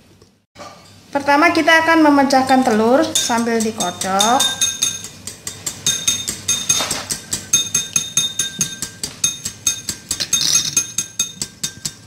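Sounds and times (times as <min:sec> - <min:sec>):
whisk clinking against glass bowl: 0:02.5 - 0:12.0.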